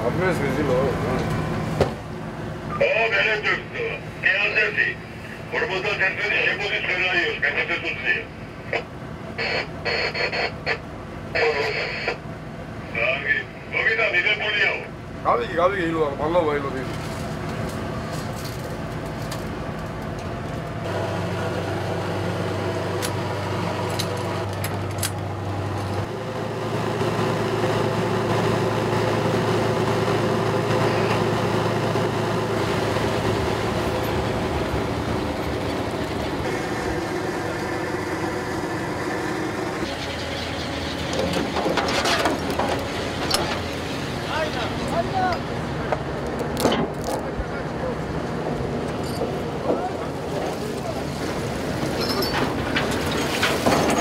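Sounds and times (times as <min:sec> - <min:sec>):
boat engine humming: 0:00.0 - 0:54.0
metal chain clanking and scraping: 0:41.0 - 0:43.6, 0:49.0 - 0:49.4, 0:51.8 - 0:54.0.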